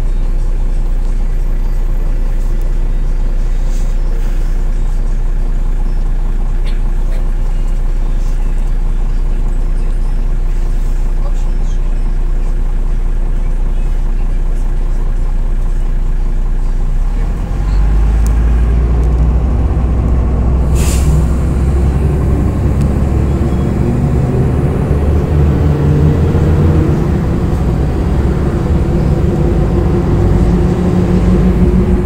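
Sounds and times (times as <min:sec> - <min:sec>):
bus diesel engine running: 0:00.0 - 0:32.0
air hiss: 0:20.6 - 0:21.5.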